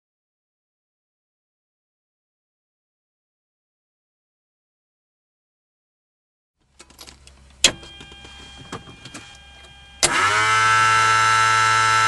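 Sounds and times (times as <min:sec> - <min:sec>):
fuel pump buzzing hum: 0:06.6 - 0:12.0.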